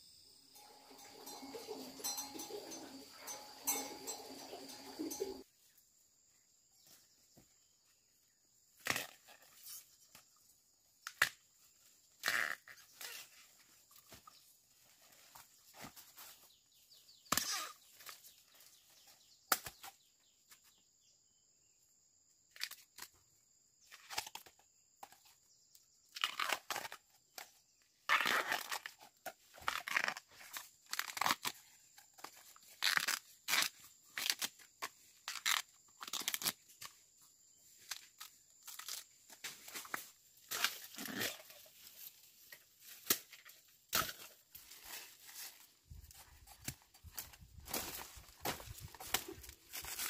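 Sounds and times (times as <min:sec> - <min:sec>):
plant material rustling and tearing: 0:28.1 - 0:36.9, 0:46.1 - 0:50.0.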